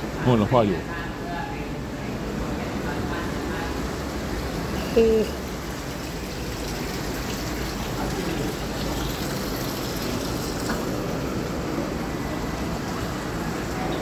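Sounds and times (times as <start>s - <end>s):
running water rushing: 1.8s - 14.0s.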